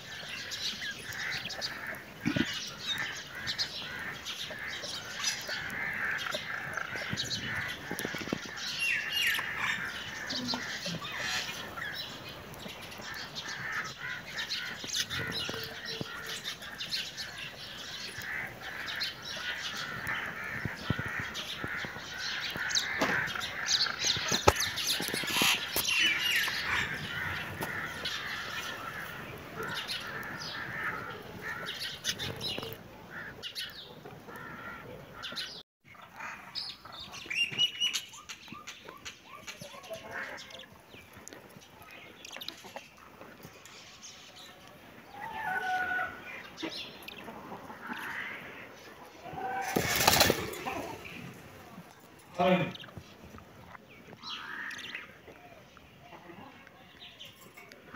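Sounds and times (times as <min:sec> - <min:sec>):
budgerigars chattering: 0:00.1 - 0:33.7
wings flapping: 0:49.4 - 0:51.2.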